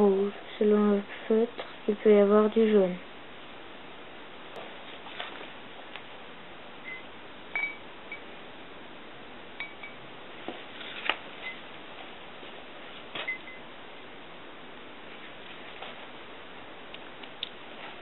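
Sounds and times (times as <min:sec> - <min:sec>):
high glassy ring: 0:09.6 - 0:10.0.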